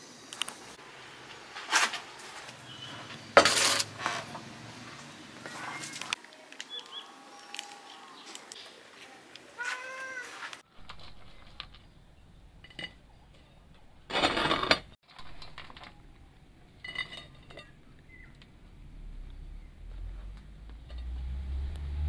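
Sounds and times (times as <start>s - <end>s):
dishes clattering: 2.7s - 4.6s, 12.6s - 18.4s.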